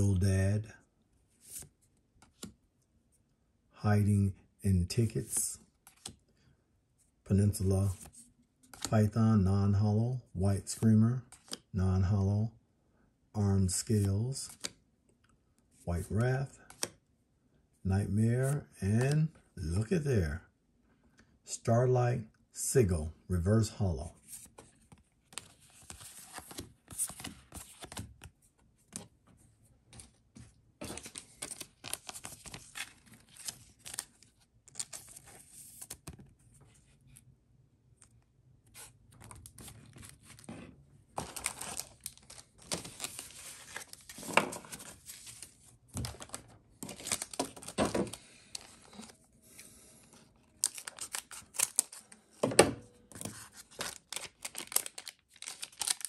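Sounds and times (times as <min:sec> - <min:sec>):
foil wrapper tearing and crinkling: 0:53.7 - 0:56.0.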